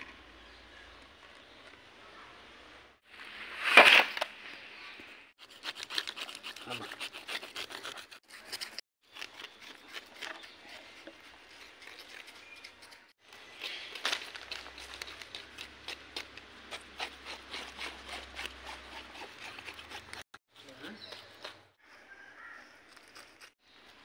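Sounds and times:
knife scraping fish scales: 5.4 - 20.4.

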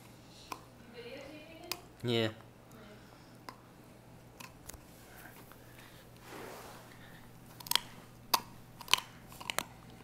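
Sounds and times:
puppy gnawing chew: 7.4 - 10.0.

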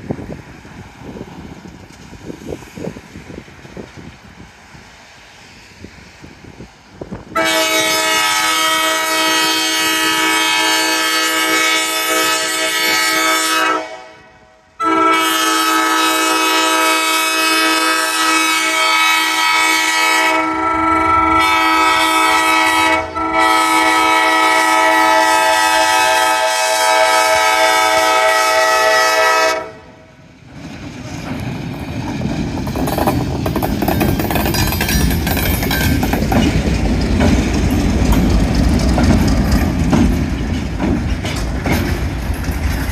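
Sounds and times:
locomotive engine and wheels rumbling: 0.0 - 42.9
locomotive air horn: 7.3 - 30.1
wheels clacking over rail joints: 30.4 - 42.9.

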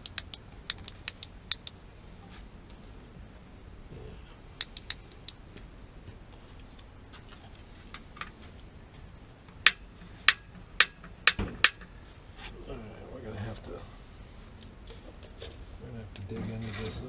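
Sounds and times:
light metallic clicks: 0.0 - 1.8, 4.6 - 5.4.

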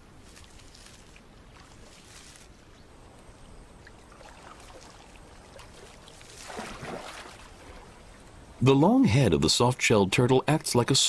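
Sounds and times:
river water rushing: 3.7 - 8.5.

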